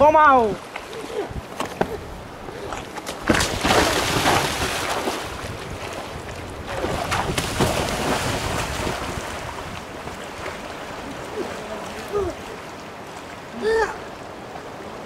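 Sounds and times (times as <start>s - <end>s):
wind buffeting microphone: 0.0s - 13.0s
river current rushing: 0.0s - 15.0s
person swimming splashing: 0.7s - 12.7s.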